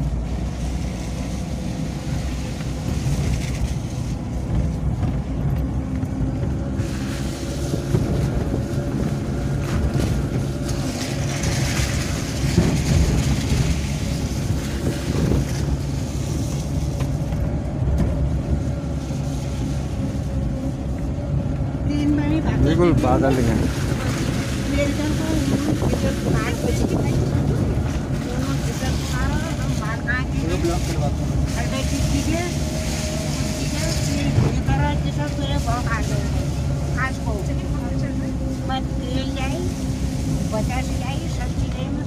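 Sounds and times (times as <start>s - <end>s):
tyre hiss on wet road: 0.0s - 4.8s, 6.7s - 17.4s, 18.6s - 21.1s, 27.3s - 41.7s
car engine and tyres rumbling: 0.0s - 42.0s.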